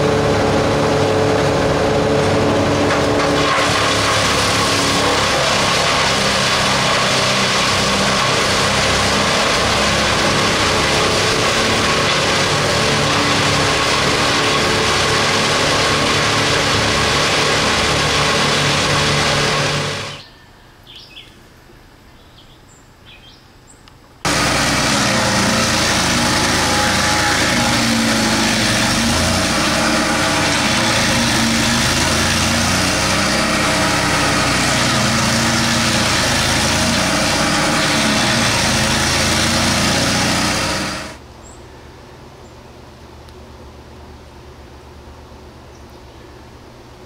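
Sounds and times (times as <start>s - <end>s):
grinding of wood stump: 0.0s - 20.2s, 24.3s - 41.2s
stump grinder engine drone: 0.0s - 20.2s, 24.2s - 41.2s
faint bird chirps: 20.2s - 23.9s.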